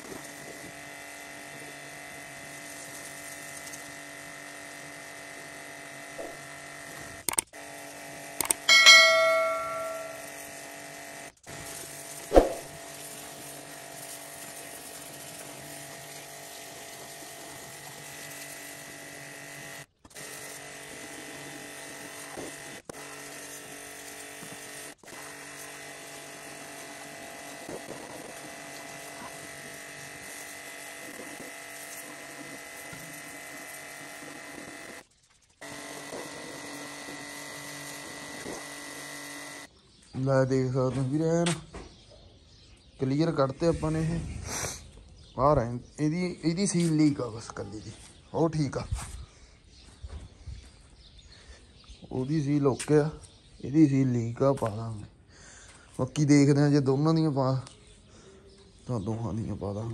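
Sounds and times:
pressure washer buzzing hum: 0.0s - 39.7s.

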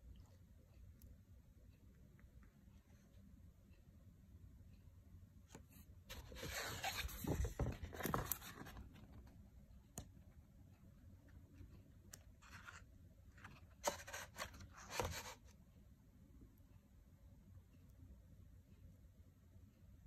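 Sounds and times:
paper pages rustling and sliding: 6.1s - 9.0s, 13.4s - 15.4s.

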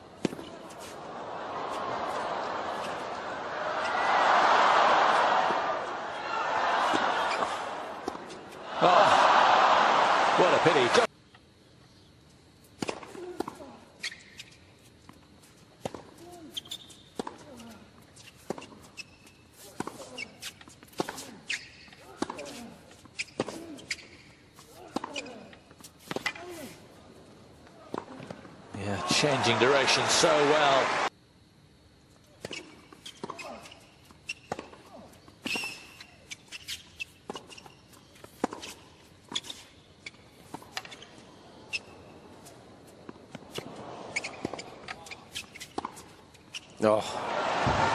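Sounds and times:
shoes squeaking on court: 0.1s - 1.0s, 6.8s - 8.6s, 12.6s - 28.5s, 32.1s - 47.0s
tennis ball bouncing: 6.8s - 8.5s
players grunting: 8.7s - 11.1s, 28.8s - 31.1s.

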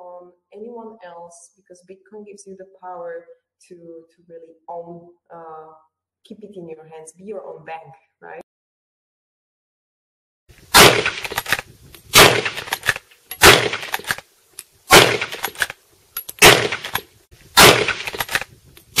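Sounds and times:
sharp echoing bangs: 10.7s - 14.2s, 14.9s - 15.7s, 16.4s - 18.4s
small clicks: 11.2s - 17.1s, 18.0s - 19.0s.

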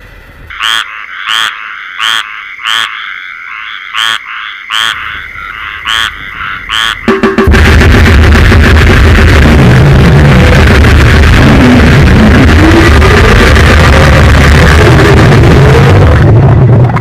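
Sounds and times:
frog croaking: 0.5s - 7.4s
loud distorted noise: 3.6s - 17.0s.

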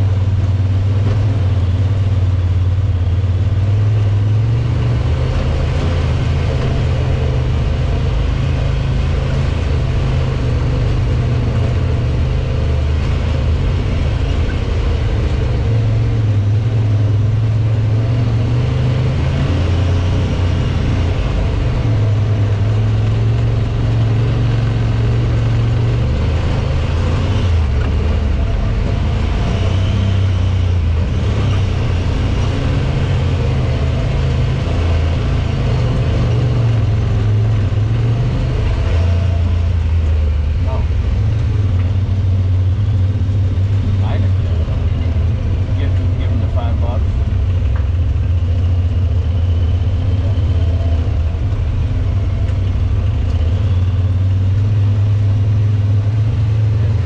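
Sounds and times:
utility vehicle engine droning: 0.0s - 57.0s.

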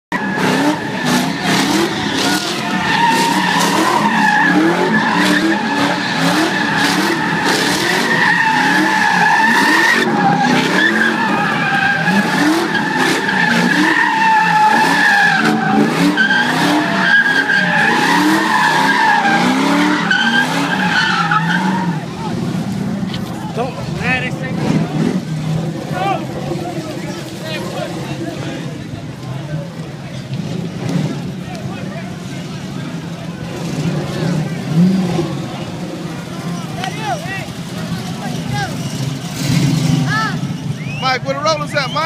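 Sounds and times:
tyres squealing: 0.1s - 22.5s
car engine revving: 0.1s - 42.0s.

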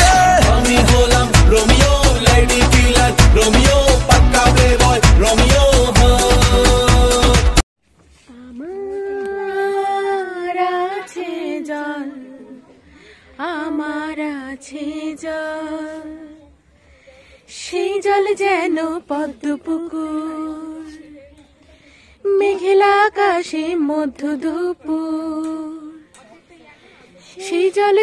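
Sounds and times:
woman singing unaccompanied: 8.2s - 16.6s, 17.5s - 21.5s, 22.2s - 26.1s, 27.2s - 28.0s.

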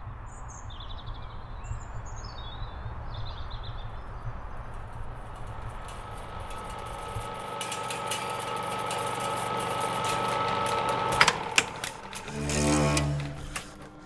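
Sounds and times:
low hum: 3.8s - 14.0s
steady high tones drone: 4.4s - 14.0s.

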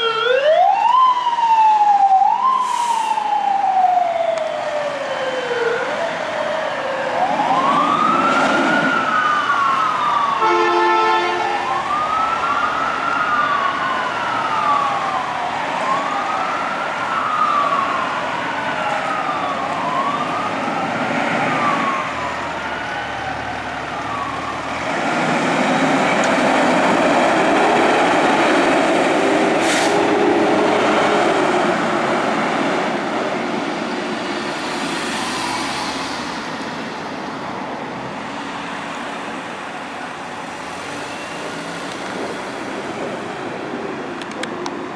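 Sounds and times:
fire truck siren wailing: 0.0s - 44.9s
truck engine and road noise: 0.0s - 44.9s
air horn blast: 10.4s - 11.6s.

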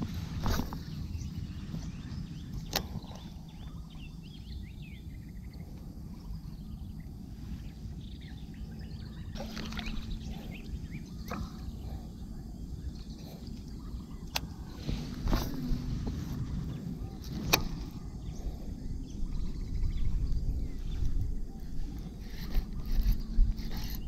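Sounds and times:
low outdoor rumble: 0.0s - 24.0s
reel spool whirring: 8.7s - 24.0s
fishing reel being wound: 22.2s - 24.0s.

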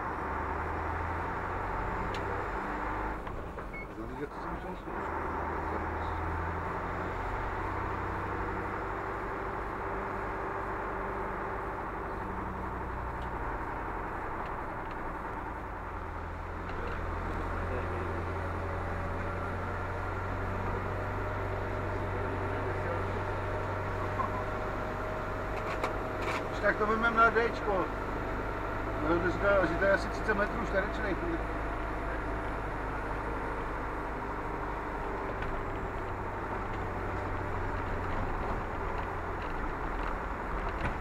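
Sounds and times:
diesel engine and road noise: 0.0s - 41.0s.

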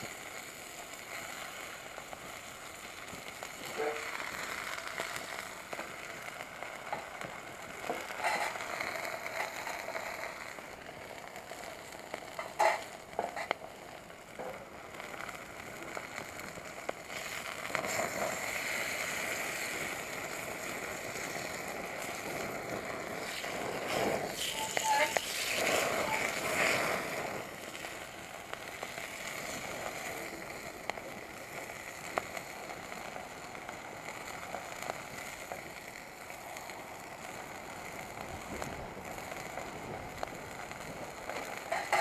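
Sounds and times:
meat sizzling in frying pan: 0.0s - 42.0s
wood fire crackling: 0.0s - 42.0s
sharp pops: 20.6s - 30.1s.

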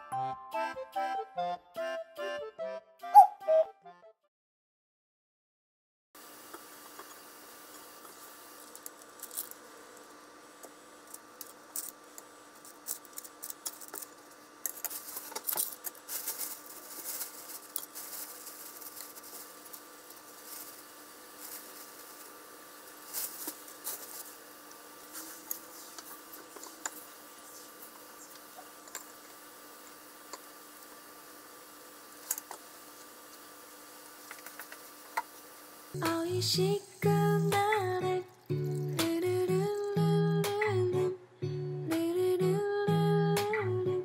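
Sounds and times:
faint steady hum: 6.2s - 44.0s
plastic bag crinkling: 12.7s - 27.1s.

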